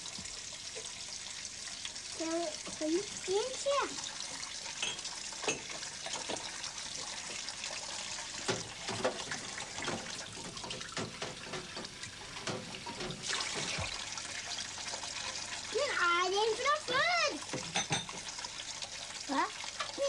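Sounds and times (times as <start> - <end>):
running and splashing water: 0.0 - 20.0
dishes clinking: 4.7 - 6.5, 17.6 - 18.4.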